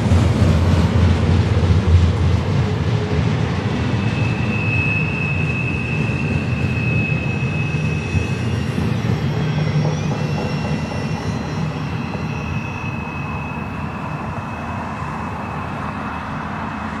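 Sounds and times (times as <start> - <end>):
train wheels rumbling on rail: 0.0 - 17.0
thin high whine: 3.8 - 17.0.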